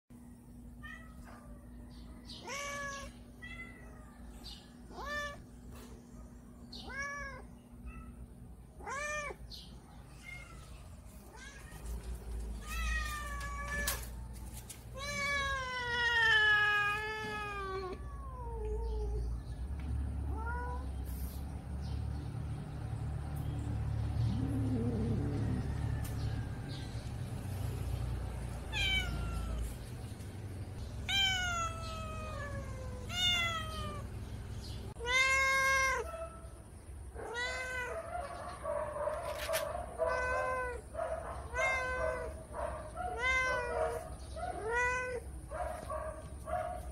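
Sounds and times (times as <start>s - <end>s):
cats meowing: 2.3s - 4.0s, 4.8s - 5.5s, 6.7s - 19.4s, 20.0s - 21.3s, 28.5s - 29.8s, 30.9s - 34.2s, 34.9s - 36.4s, 37.2s - 38.3s, 39.3s - 45.5s.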